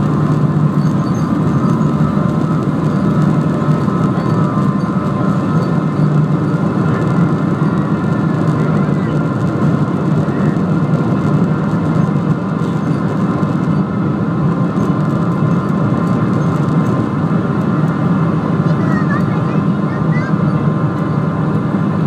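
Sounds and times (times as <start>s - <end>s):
high jet engine whine: 0.0s - 22.0s
jet engines roaring in cabin: 0.0s - 22.0s.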